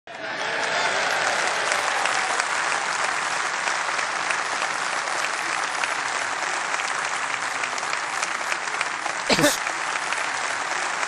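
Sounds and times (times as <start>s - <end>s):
audience applauding: 0.1s - 11.0s.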